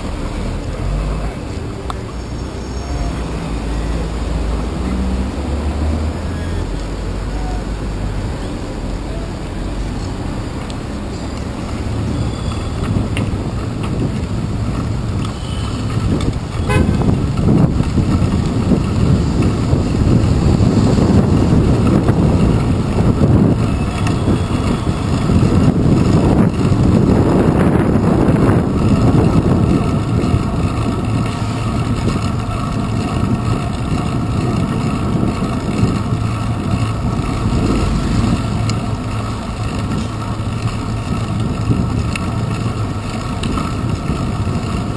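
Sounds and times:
traffic rumble: 0.0s - 44.9s
car horn toot: 15.3s - 17.2s
wind on microphone: 15.8s - 44.9s.

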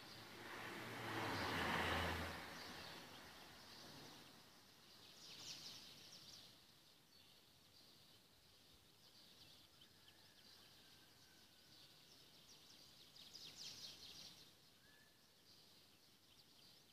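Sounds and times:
faint bird chirps: 2.6s - 16.9s.

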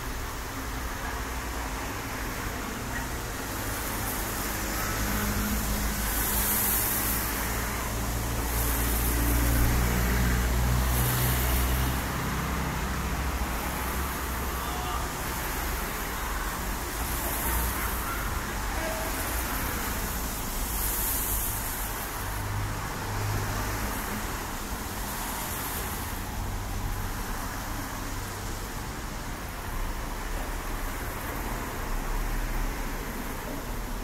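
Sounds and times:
tyres hissing on wet road: 0.0s - 34.0s.

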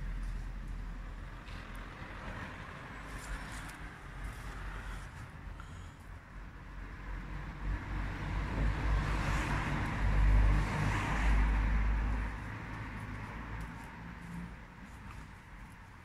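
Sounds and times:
vehicle passing by: 6.5s - 16.0s.

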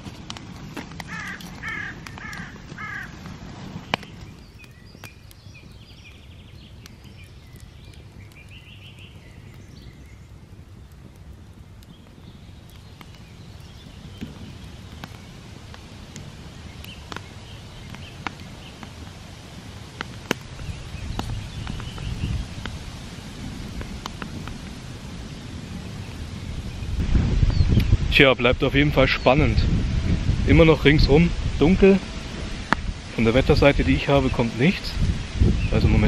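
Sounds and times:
low outdoor background: 0.0s - 36.0s
crow cawing: 1.1s - 3.2s
small birds chirping: 3.8s - 22.8s, 25.3s - 28.0s.

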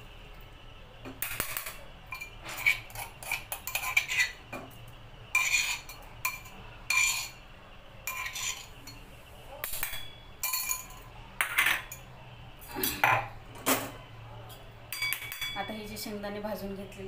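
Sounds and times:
metal spoon scraping steel bowl: 1.3s - 4.4s, 5.3s - 7.4s, 8.0s - 9.0s.

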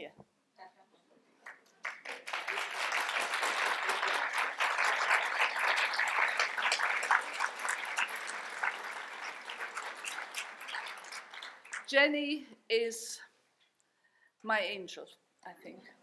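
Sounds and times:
audience applauding: 1.4s - 12.0s.

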